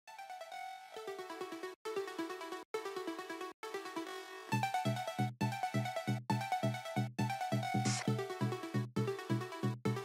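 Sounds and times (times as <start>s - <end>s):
upbeat electronic music: 4.6s - 10.0s.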